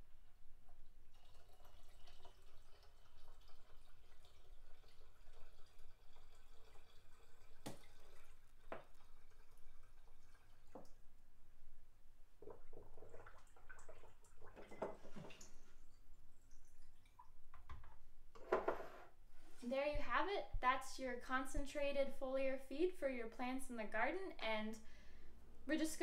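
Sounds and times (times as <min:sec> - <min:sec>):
water trickling through funnel: 0:00.7 - 0:11.2, 0:12.4 - 0:17.8.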